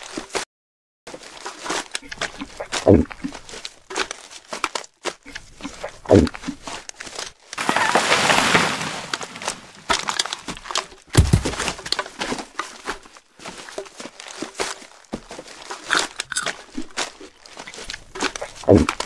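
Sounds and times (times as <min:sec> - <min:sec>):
crinkling and crackling: 0:01.1 - 0:19.0
rustle: 0:07.6 - 0:09.9.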